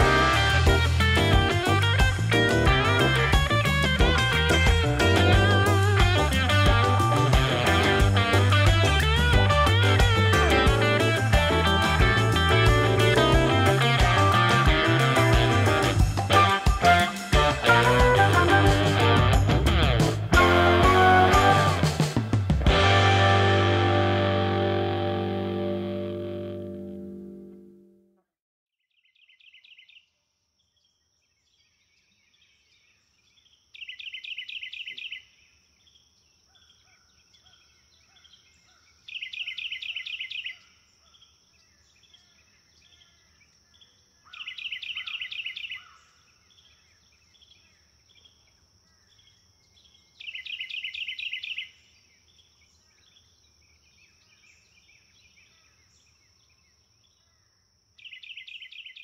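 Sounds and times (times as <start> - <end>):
loud rapid trill: 0.0 - 25.8.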